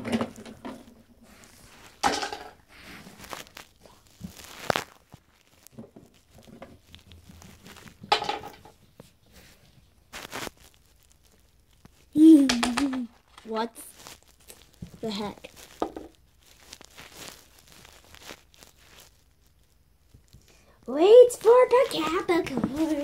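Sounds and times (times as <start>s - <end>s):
rustling and crinkling: 0.0s - 23.0s
plastic toys scraping: 20.9s - 23.0s.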